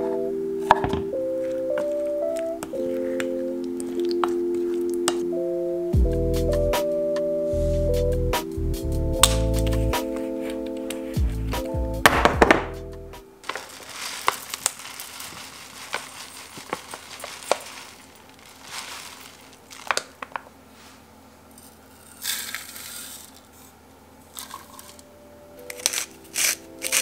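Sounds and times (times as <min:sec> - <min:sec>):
soft background music: 0:00.0 - 0:14.2, 0:24.4 - 0:27.0
dry ingredients pouring into bowl: 0:13.4 - 0:20.2, 0:22.0 - 0:23.4.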